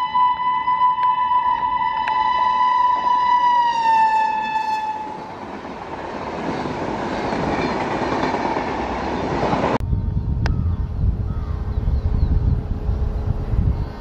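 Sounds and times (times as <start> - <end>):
locomotive horn blowing: 0.0 - 5.3
train wheels rolling on rails: 0.8 - 9.8.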